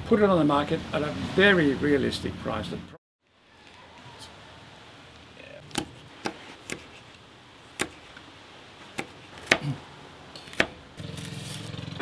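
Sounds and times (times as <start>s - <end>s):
cleaver chopping on cutting board: 5.7s - 6.9s, 7.8s - 8.0s, 8.9s - 9.8s, 10.4s - 10.8s.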